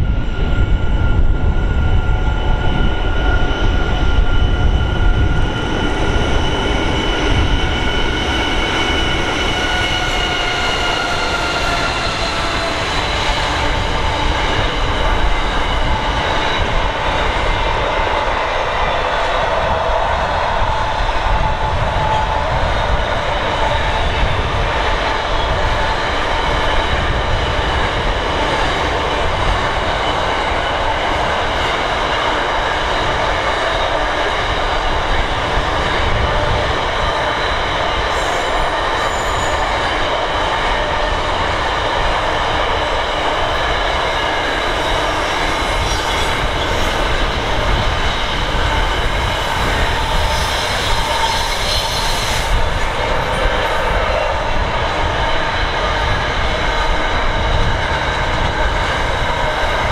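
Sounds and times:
steel wheels rumbling on rail: 0.0 - 59.9
high ringing from train wheels: 21.2 - 55.2.

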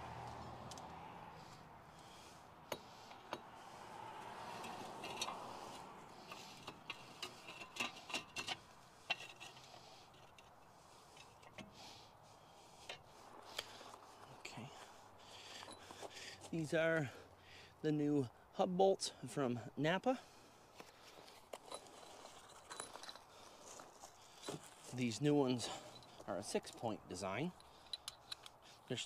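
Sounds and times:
light metallic clicks and taps: 27.6 - 28.6.

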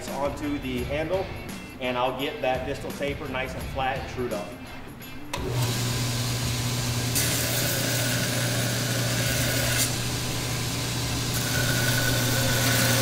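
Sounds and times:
belt grinder motor humming: 5.3 - 13.0.

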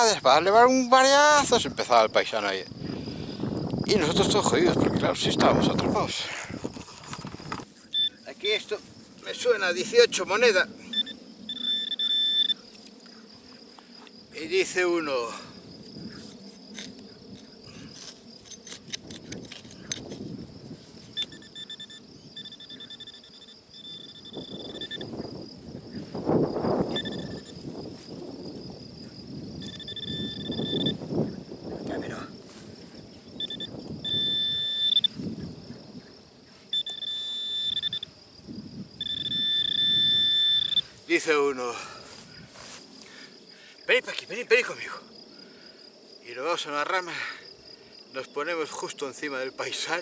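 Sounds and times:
metal detector buzzing: 10.9 - 12.7, 21.1 - 25.2, 26.9 - 27.6, 29.6 - 31.0, 33.4 - 35.2, 36.7 - 38.1, 39.0 - 40.9
soft scrapes of soil: 15.8 - 17.0, 32.4 - 33.0, 41.8 - 43.3.

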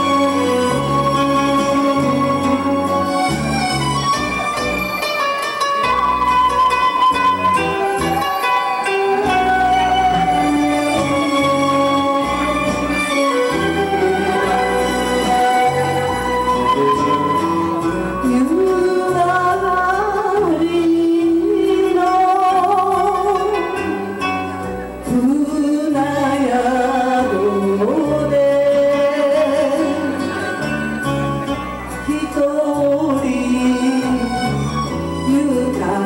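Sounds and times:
woman singing into microphone: 0.0 - 3.1, 9.1 - 24.3, 25.0 - 30.7, 32.0 - 36.0
instrumental backing with bass line: 0.0 - 36.0.

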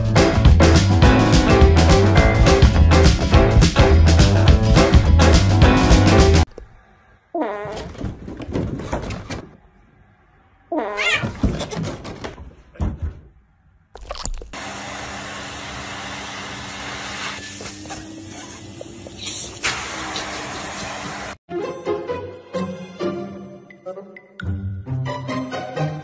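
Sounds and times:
cat meowing: 10.7 - 11.4
vacuum cleaner running: 14.6 - 18.7, 19.6 - 21.4.

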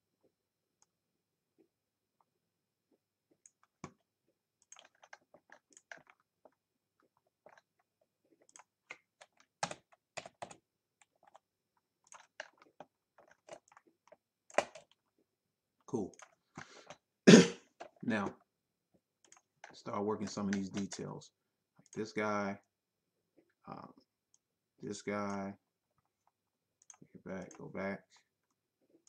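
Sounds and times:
computer keyboard clicking: 4.6 - 6.2, 8.4 - 11.4, 12.0 - 15.0.

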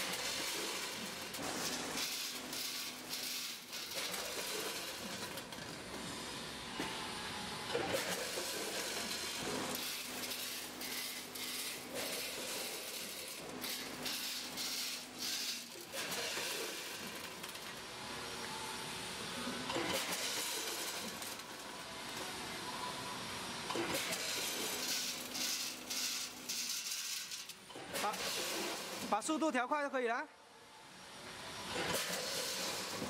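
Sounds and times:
pasta clattering into metal hoppers: 0.0 - 5.8, 7.8 - 17.8, 23.8 - 29.3.

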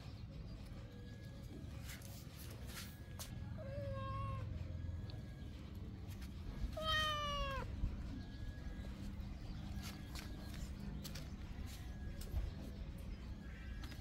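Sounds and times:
cats meowing: 3.5 - 4.6, 6.7 - 7.8.

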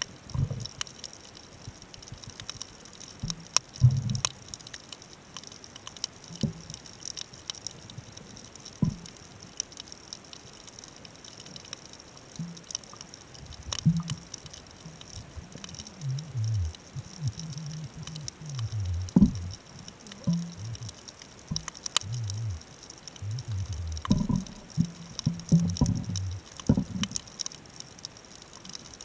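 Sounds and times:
underwater clicks and crackles: 0.0 - 29.0
low thuds: 16.0 - 19.6.

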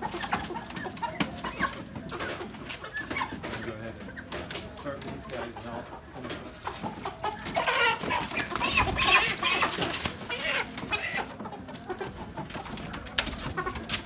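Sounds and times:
chickens squawking and clucking: 0.0 - 14.0.

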